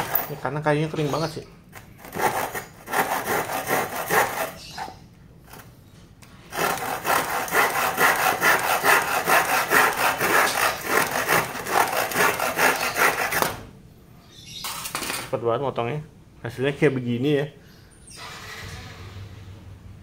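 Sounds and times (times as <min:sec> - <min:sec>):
hand saw cutting wood: 0:00.0 - 0:00.4, 0:01.9 - 0:05.0, 0:06.5 - 0:13.7.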